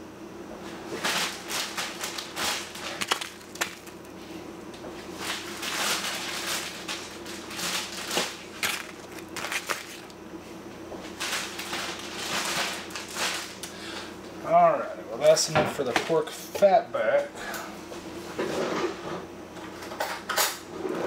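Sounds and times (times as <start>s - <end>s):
plastic bags crinkling: 1.0s - 4.1s, 5.2s - 10.2s, 11.2s - 13.7s.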